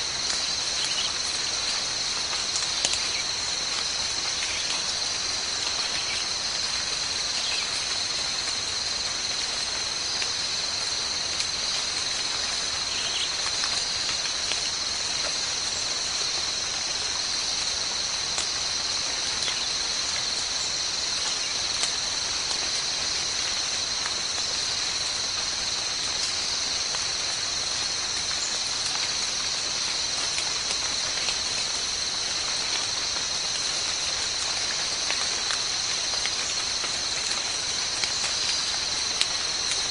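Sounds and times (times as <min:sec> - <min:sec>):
insects droning: 0:00.0 - 0:39.9.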